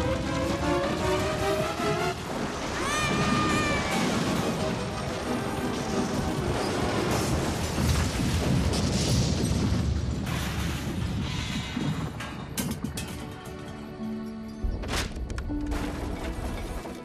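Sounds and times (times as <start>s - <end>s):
background music: 0.0s - 7.8s, 12.4s - 17.0s
wooden building collapsing: 0.0s - 13.9s.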